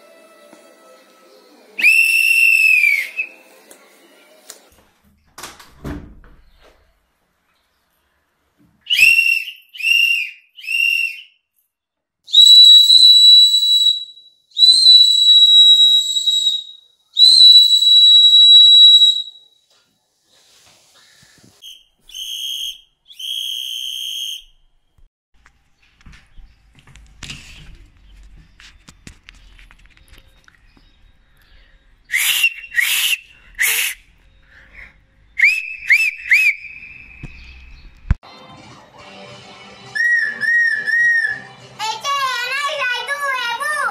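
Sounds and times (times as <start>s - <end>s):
whistle blasts: 1.8s - 3.3s, 8.9s - 11.4s, 12.3s - 19.5s, 21.6s - 24.5s, 32.1s - 34.0s, 35.4s - 37.3s, 40.0s - 41.5s.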